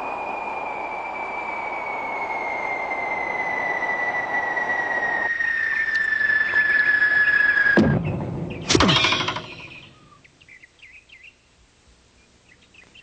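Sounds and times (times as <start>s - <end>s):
descending cartoon whistle: 0.0s - 10.2s.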